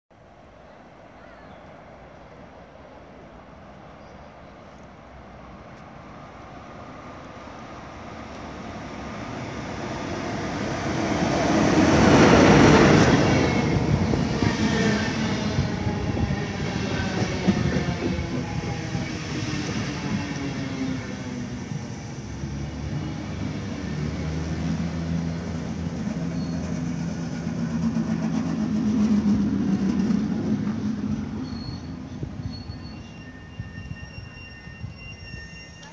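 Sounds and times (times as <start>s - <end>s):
train running on rails: 0.4s - 35.9s
faint brake squeals: 25.2s - 27.2s, 30.8s - 35.9s.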